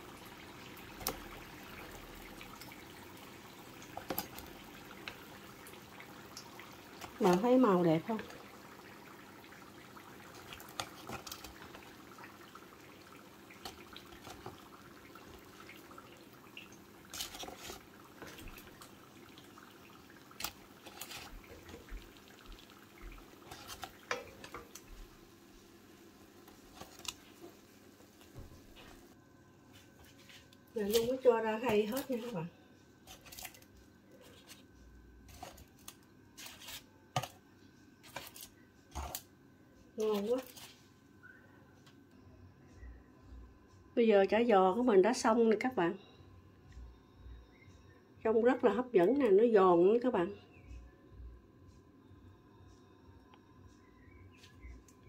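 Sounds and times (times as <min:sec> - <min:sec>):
hot oil crackling and dripping: 0:00.0 - 0:29.2, 0:29.9 - 0:32.4, 0:33.1 - 0:37.4, 0:40.0 - 0:40.8.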